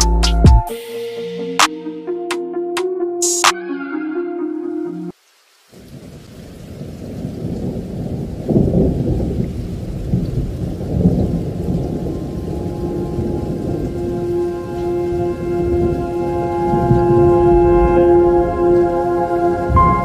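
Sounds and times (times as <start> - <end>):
steady music tones: 0.0 - 5.1, 12.1 - 20.0
rain: 5.1 - 20.0
rolling thunder: 5.9 - 20.0.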